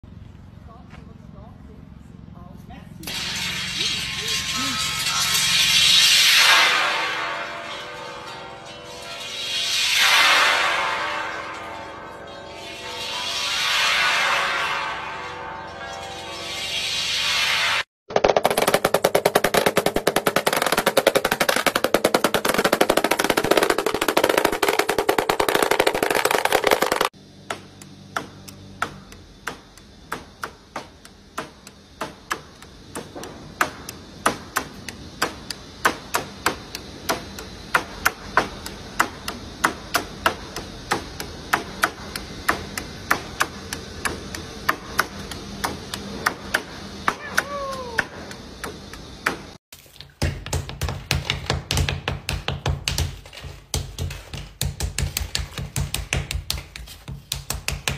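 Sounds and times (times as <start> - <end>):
dense rattle of rapid clicks: 18.2 - 27.1
hammer tapping nails into metal: 50.2 - 57.9.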